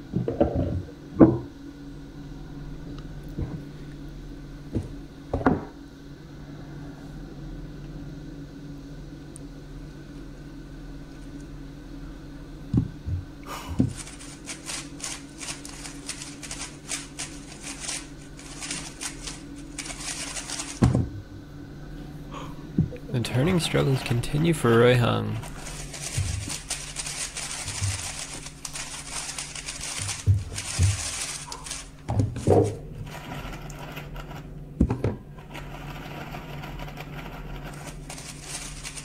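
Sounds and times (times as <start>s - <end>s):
low room hum: 0.0s - 39.0s
plastic cube clicking rapidly: 13.9s - 20.9s, 25.7s - 31.8s.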